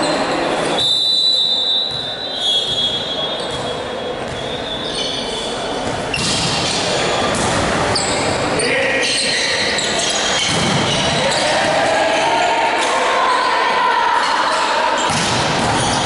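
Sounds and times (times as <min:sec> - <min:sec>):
reverberant hall hum: 0:00.0 - 0:16.0
sneakers squeaking on court: 0:01.8 - 0:11.5, 0:15.0 - 0:16.0.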